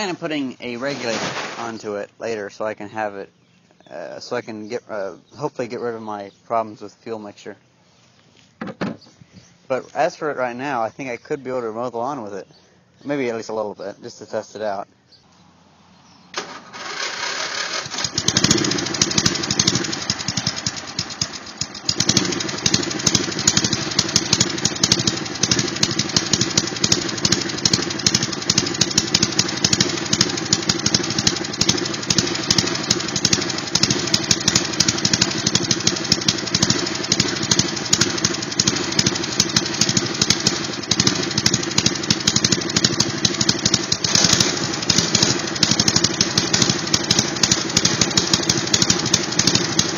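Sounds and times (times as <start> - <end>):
lawn mower engine starting and running: 0.0 - 2.1, 16.0 - 49.9.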